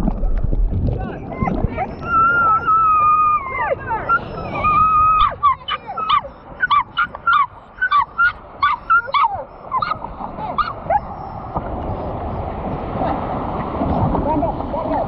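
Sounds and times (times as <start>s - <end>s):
surf washing: 0.0s - 15.0s
small dog yipping: 1.8s - 11.3s.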